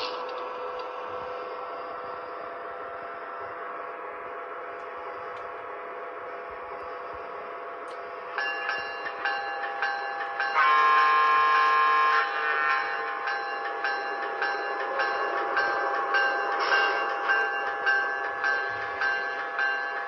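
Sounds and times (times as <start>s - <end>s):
model train steady hum: 0.0s - 20.0s
locomotive horn blast: 10.6s - 12.8s.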